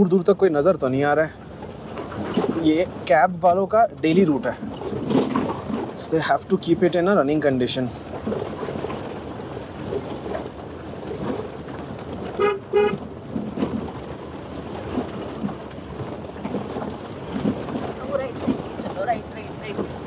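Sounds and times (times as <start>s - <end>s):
car rumbling and knocking on rough track: 0.0s - 20.0s
car horn toots: 12.3s - 13.0s.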